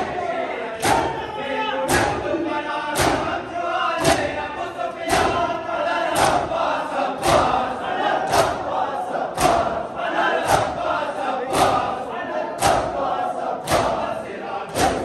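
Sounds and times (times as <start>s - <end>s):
group chanting: 0.0s - 15.0s
hands slapping bare chests: 0.8s - 1.1s, 3.0s - 3.4s, 6.2s - 6.5s, 8.3s - 8.6s, 9.4s - 9.8s, 12.6s - 12.9s, 13.6s - 14.1s, 14.7s - 15.0s.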